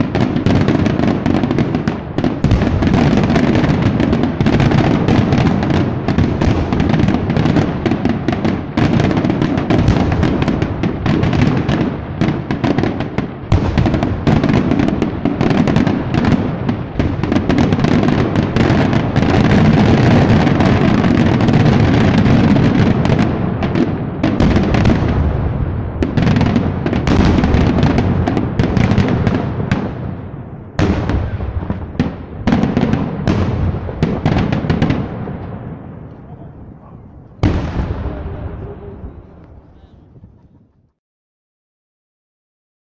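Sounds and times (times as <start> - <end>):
fireworks bursting: 0.0 - 40.8.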